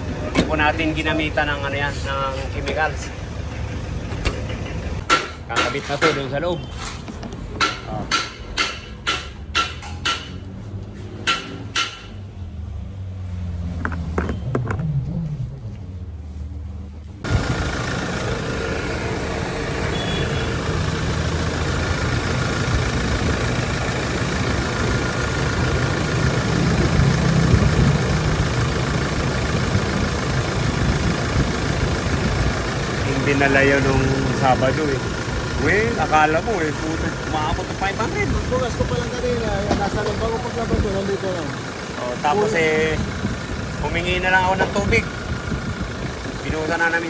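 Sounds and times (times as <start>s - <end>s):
car engine running: 16.9s - 47.0s.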